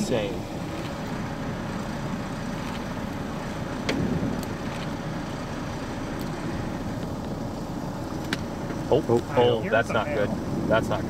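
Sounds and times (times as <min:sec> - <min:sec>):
wind buffeting microphone: 0:02.9 - 0:05.2.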